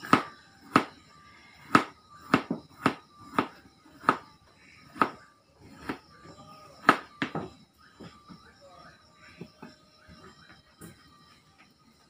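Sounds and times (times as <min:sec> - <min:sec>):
knife chopping on cutting board: 0:05.0 - 0:05.2.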